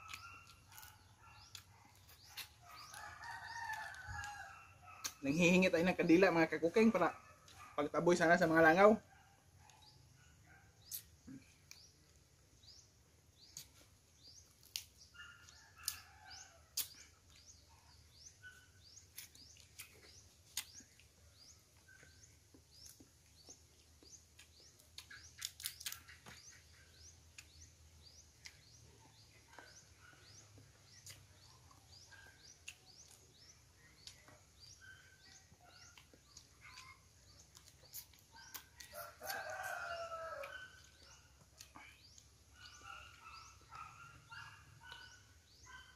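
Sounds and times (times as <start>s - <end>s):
bird chirps: 0.0s - 3.1s, 9.7s - 45.9s
rooster crowing: 2.9s - 5.0s, 38.9s - 40.8s.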